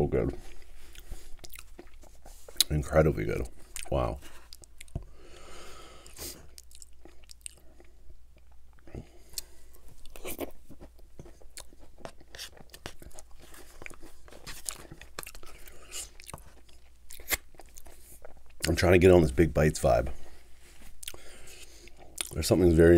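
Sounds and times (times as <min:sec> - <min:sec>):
wet chewing and lip smacks: 0:00.5 - 0:02.7, 0:03.7 - 0:05.1, 0:06.0 - 0:18.8, 0:20.9 - 0:21.2, 0:21.8 - 0:22.4.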